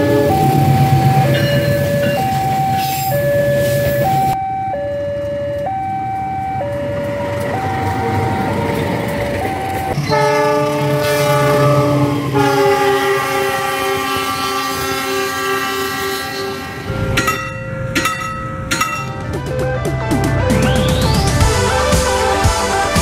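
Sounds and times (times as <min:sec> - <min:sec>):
level crossing two-tone alarm: 0:00.0 - 0:12.8
passing train rumble: 0:00.0 - 0:23.0
train horn chord: 0:10.0 - 0:17.5.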